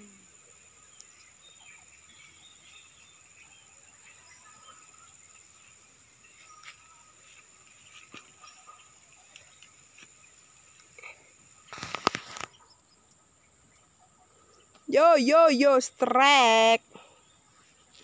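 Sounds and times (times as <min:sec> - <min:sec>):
insects whining: 0:00.0 - 0:18.0
faint ticks: 0:00.9 - 0:01.3, 0:07.6 - 0:10.1
brief rustling: 0:11.7 - 0:12.6.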